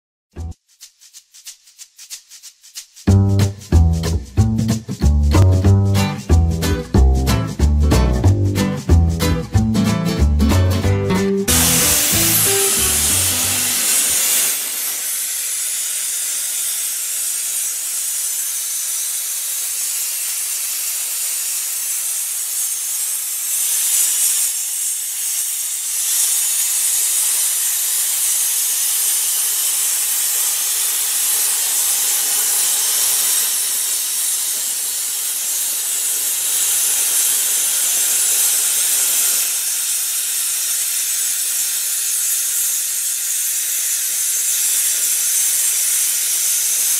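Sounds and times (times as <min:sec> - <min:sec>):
music: 0:00.3 - 0:00.6, 0:03.0 - 0:14.3
plasma cutter arc hissing: 0:11.5 - 0:46.9.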